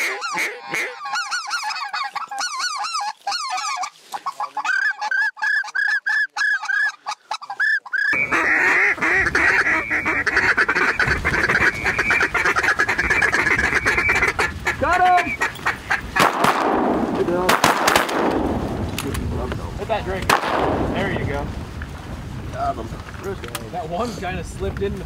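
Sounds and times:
goose call honks and clucks: 0:00.0 - 0:16.4
geese calling: 0:00.0 - 0:16.6
wind rumble on microphone: 0:08.2 - 0:25.0.

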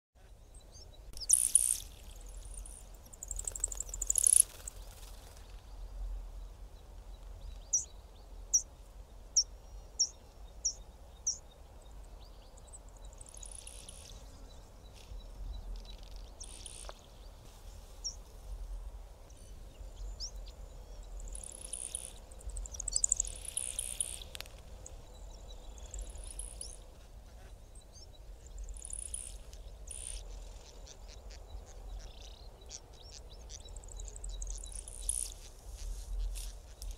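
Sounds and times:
bird sizzling display calls: 0:01.2 - 0:05.4, 0:15.9 - 0:17.0, 0:28.6 - 0:36.9.

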